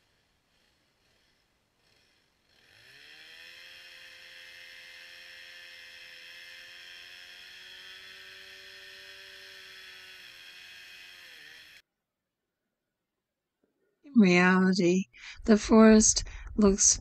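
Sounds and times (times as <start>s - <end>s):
faint chainsaw running: 0.0s - 11.8s.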